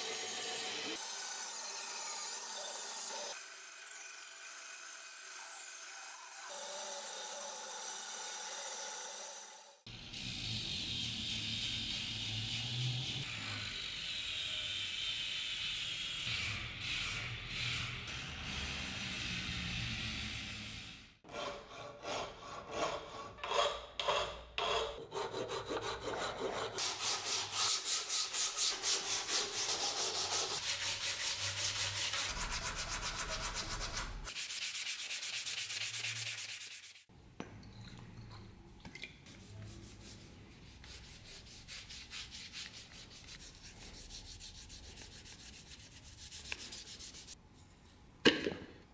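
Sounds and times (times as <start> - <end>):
angle grinder sanding wood: 21.4 - 37.1.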